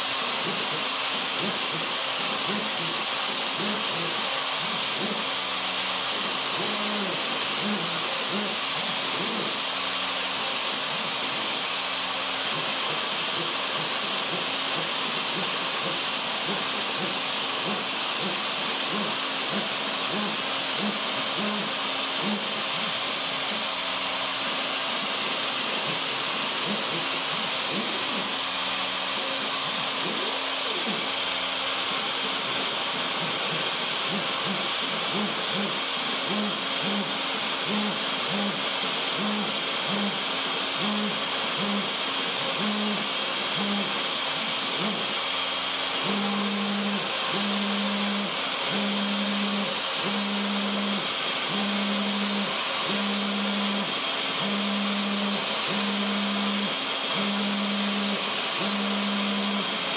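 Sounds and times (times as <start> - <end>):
router whining through wood: 0.0 - 59.9.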